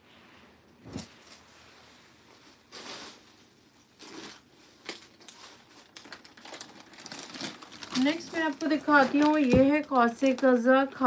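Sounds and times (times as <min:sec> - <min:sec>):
plastic packaging crinkling: 0:02.7 - 0:11.0.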